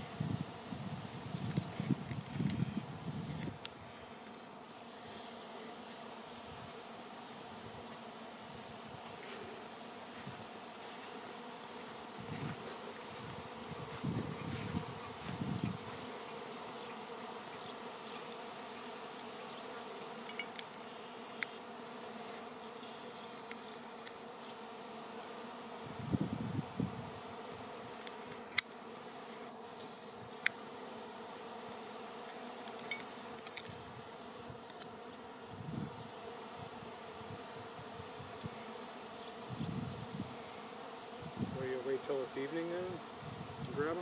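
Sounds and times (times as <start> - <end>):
bees humming: 0.0 - 44.0.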